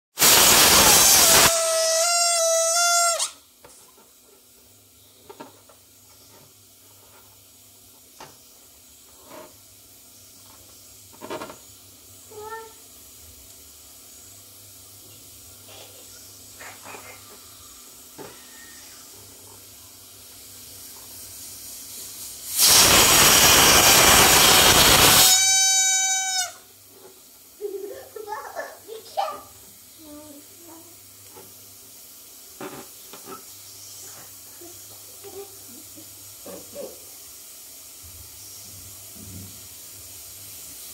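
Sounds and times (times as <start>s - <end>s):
air rushing out of balloon: 0.2s - 3.2s, 22.4s - 26.4s
balloon neck squealing: 0.2s - 3.4s, 22.6s - 26.6s.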